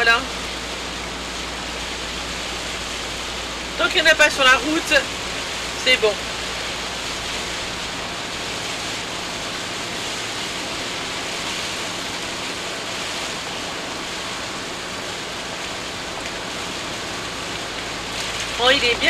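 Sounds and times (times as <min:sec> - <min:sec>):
rain on windscreen: 0:00.0 - 0:19.0
tyres hissing on wet road: 0:00.0 - 0:19.0.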